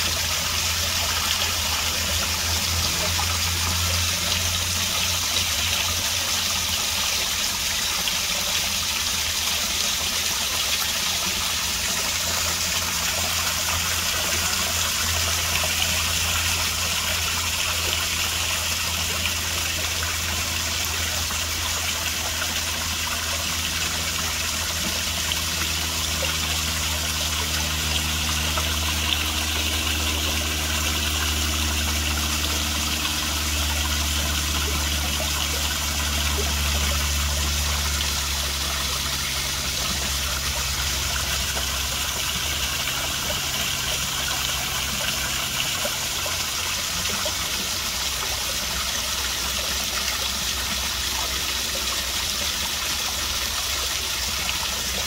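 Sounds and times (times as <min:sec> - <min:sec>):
waterfall splashing into pond: 0:00.0 - 0:55.0.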